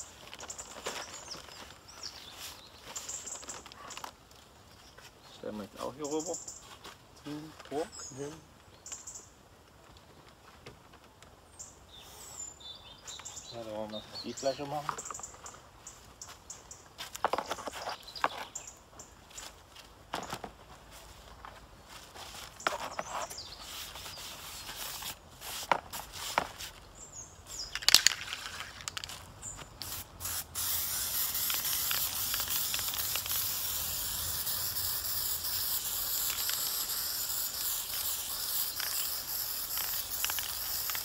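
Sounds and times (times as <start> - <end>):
cardboard and paper rustling: 0.1 - 4.2
spray paint can hissing: 23.4 - 26.7, 29.8 - 41.0.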